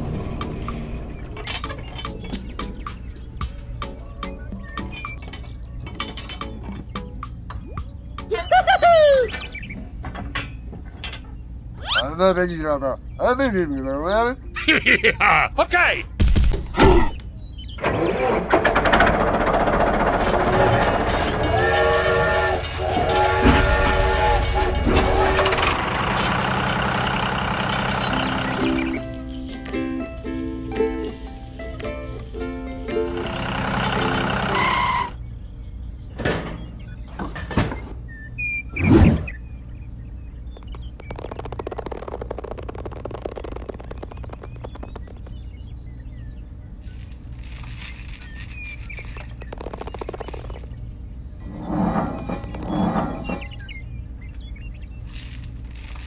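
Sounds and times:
birds chirping: 0.0s - 18.6s, 20.2s - 56.0s
low engine-like rumble: 17.2s - 30.2s, 32.2s - 56.0s
steady low hum: 18.8s - 56.0s
toy train horn: 20.3s - 26.3s, 33.2s - 35.2s
crackling and clicking of plastic gears: 40.6s - 45.4s, 46.8s - 50.7s.

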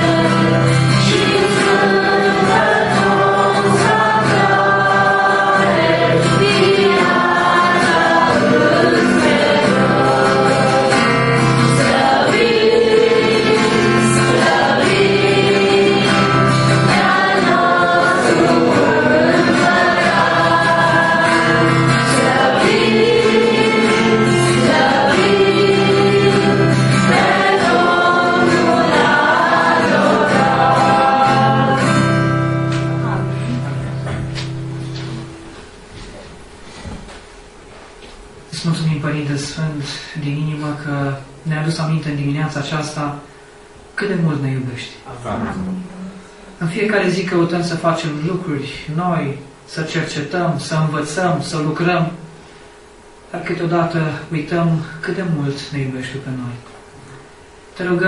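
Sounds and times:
people singing worship song: 0.0s - 34.5s
acoustic guitar: 0.0s - 58.0s.

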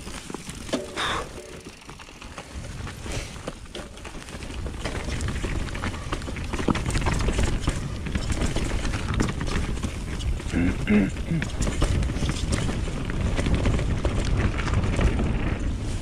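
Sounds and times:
bike clicking and rattling: 0.0s - 16.0s
wind rushing on microphone: 11.4s - 16.0s.

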